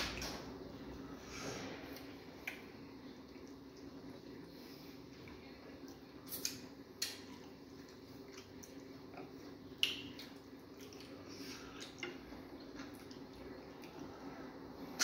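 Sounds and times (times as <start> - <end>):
faint low hum: 0.0 - 15.0
wet eating clicks and smacks: 1.9 - 2.7, 5.8 - 11.2.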